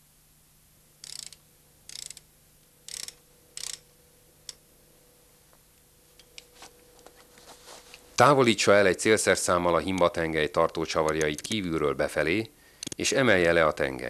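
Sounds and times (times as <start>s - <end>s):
ratchet wrench clicking: 1.0s - 2.3s, 2.9s - 4.6s
sharp click: 12.8s - 13.0s.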